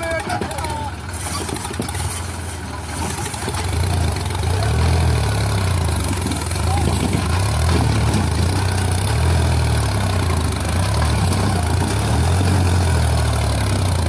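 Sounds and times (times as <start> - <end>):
tractor diesel engine labouring: 0.0 - 14.0.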